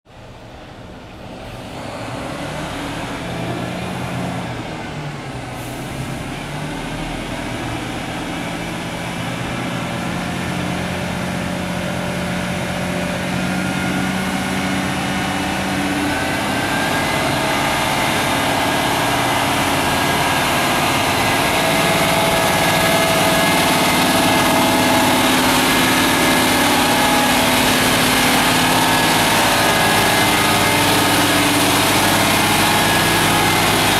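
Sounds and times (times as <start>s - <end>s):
truck diesel engine running: 0.1s - 33.9s.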